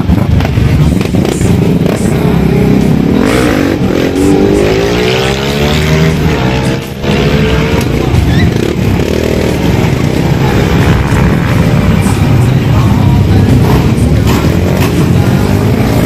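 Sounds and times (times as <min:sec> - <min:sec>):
motorcycles passing and revving: 0:00.0 - 0:16.0.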